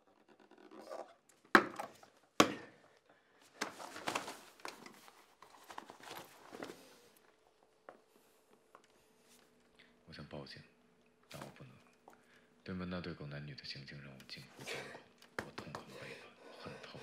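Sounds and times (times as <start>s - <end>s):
scuffling and rustling: 3.6s - 7.2s.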